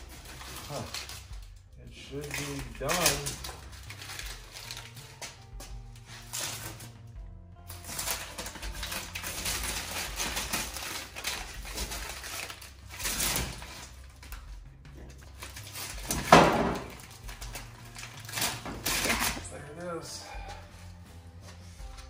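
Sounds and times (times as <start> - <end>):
tape crumpled in hand: 0.1 - 1.4, 2.1 - 6.9, 7.7 - 14.5
tape peeling off metal: 2.1 - 5.4, 6.0 - 7.0, 7.7 - 14.5, 15.1 - 19.6.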